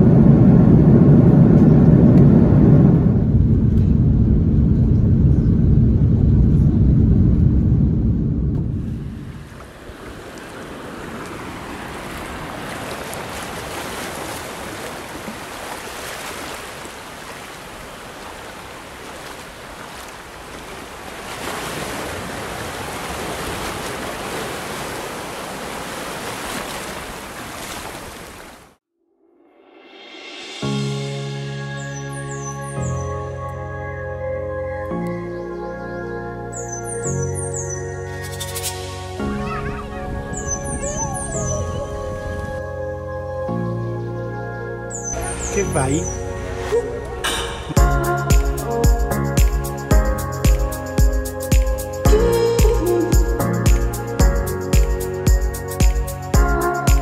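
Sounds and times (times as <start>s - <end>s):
waves washing over sand: 8.8s - 28.8s.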